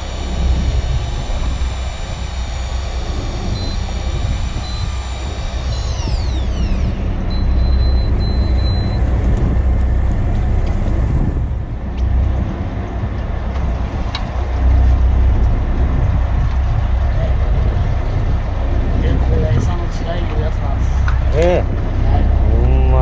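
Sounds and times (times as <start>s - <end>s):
thin high tone: 0.0s - 9.1s
boat engine rumbling: 0.0s - 23.0s.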